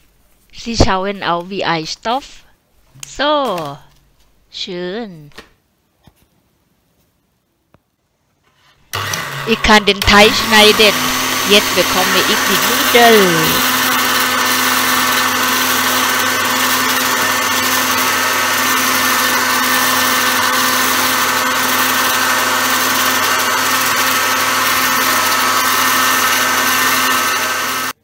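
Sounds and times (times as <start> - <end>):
electric pasta machine motor whine: 8.9 - 28.0.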